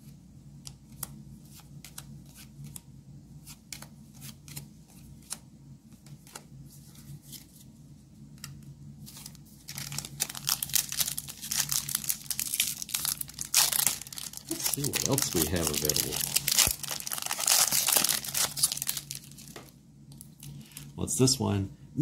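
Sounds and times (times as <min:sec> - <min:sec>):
foil wrapper crinkling and tearing: 0:09.7 - 0:19.6.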